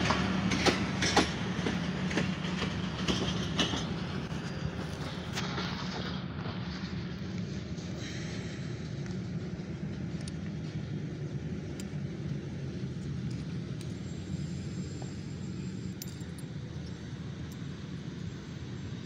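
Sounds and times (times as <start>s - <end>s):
steady low rumble: 4.1s - 19.0s.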